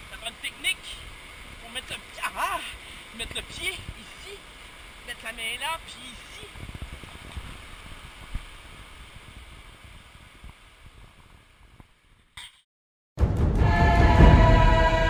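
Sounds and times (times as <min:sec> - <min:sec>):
river rushing: 0:00.0 - 0:10.2
music: 0:13.2 - 0:15.0.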